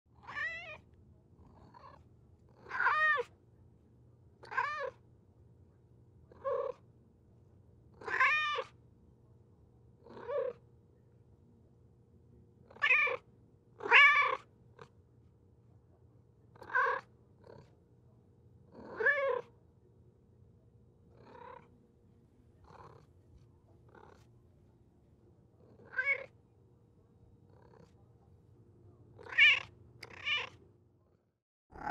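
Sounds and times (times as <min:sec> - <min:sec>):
cat meowing: 0:00.2 - 0:00.8, 0:02.7 - 0:03.3, 0:08.0 - 0:08.7, 0:12.8 - 0:13.2, 0:13.8 - 0:14.4, 0:18.9 - 0:19.5, 0:25.9 - 0:26.3, 0:29.2 - 0:30.6.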